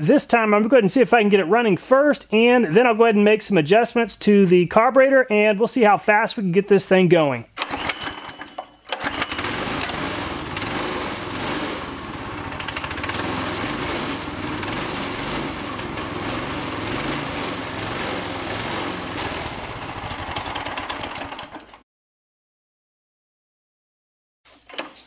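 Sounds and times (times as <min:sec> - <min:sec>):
small engine running: 0:07.6 - 0:21.8.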